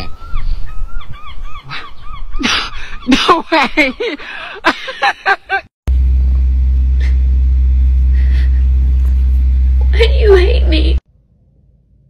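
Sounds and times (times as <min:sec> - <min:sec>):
loud steady low hum: 0:05.9 - 0:11.0.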